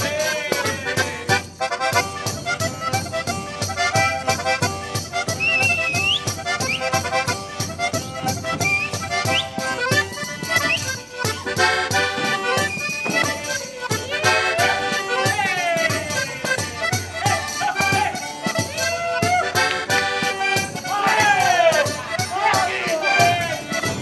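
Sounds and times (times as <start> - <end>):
folk dance music with accordions: 0.0 - 24.0.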